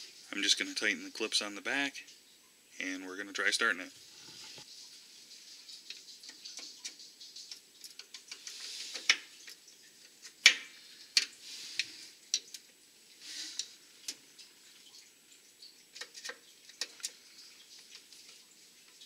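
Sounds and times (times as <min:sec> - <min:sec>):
light scraping and rustling: 0:04.0 - 0:05.0.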